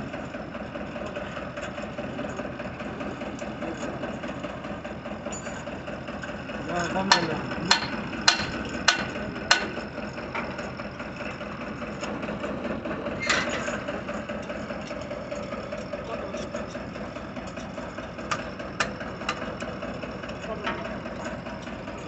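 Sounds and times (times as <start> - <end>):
tractor engine running: 0.0 - 22.0
hammer clanking on metal: 6.9 - 9.8.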